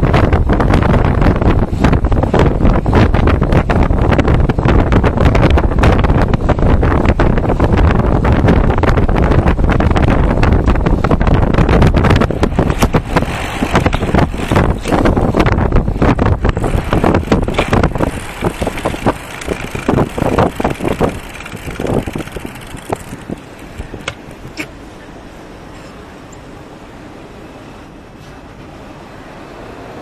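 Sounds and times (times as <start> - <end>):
wind buffeting microphone: 0.0 - 24.7
road rumble: 0.0 - 30.0
sharp clicks: 17.0 - 24.7.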